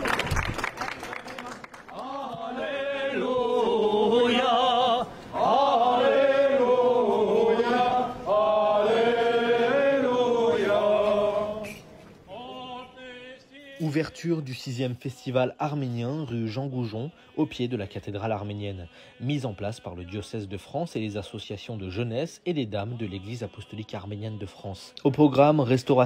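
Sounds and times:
man chanting prayer: 12.4s - 26.0s.

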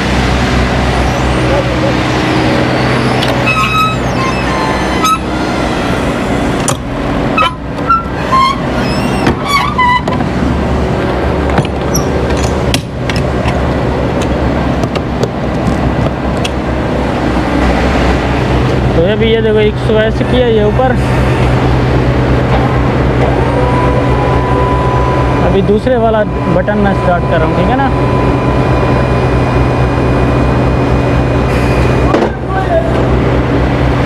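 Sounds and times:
hydraulic lift humming: 0.0s - 19.0s
short high squeaks: 1.0s - 6.5s, 7.4s - 10.2s, 11.9s - 12.6s.

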